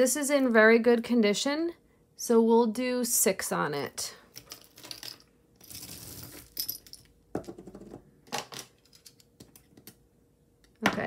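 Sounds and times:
metal jewelry clinking on table: 4.3s - 7.2s.

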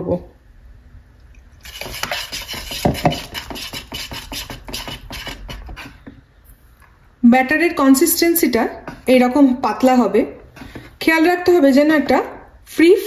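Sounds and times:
whisk scraping in plastic bowl: 1.6s - 6.2s.

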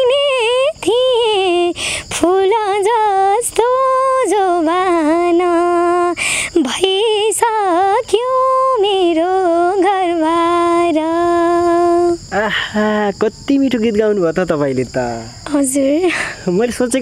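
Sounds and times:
woman singing unaccompanied: 0.0s - 12.3s.

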